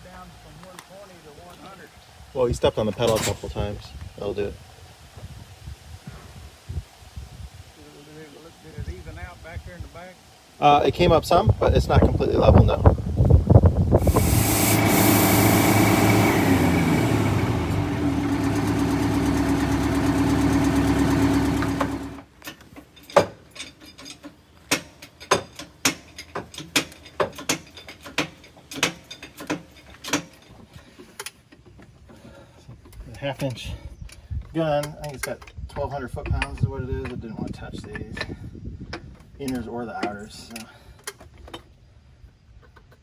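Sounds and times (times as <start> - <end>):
bus engine revving down: 14.0 - 22.2
hand tools clicking on metal: 22.4 - 31.7, 38.9 - 41.7.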